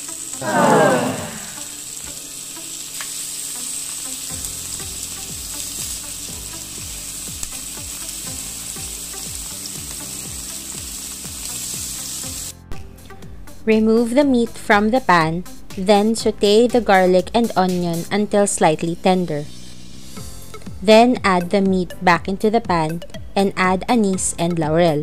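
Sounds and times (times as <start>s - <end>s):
meat sizzling in hot oil: 0.0s - 0.4s, 1.6s - 13.2s, 19.4s - 20.8s.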